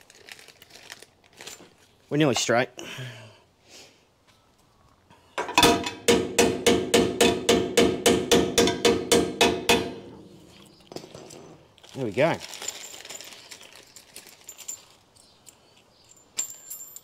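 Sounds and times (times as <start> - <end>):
hammer striking metal: 5.4 - 10.2.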